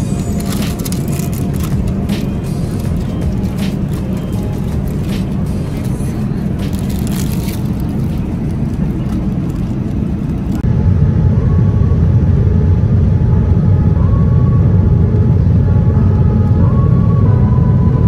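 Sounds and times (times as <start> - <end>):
plastic wrapping crinkling: 0.0 - 10.6
airliner cabin rumble: 0.0 - 18.0.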